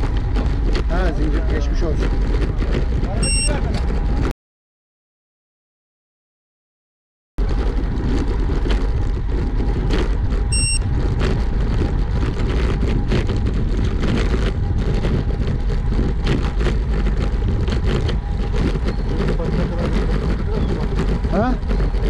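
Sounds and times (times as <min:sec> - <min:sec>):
wind buffeting microphone: 0:00.0 - 0:04.3, 0:07.4 - 0:22.0
short electronic beep: 0:03.2 - 0:03.6, 0:10.5 - 0:10.8.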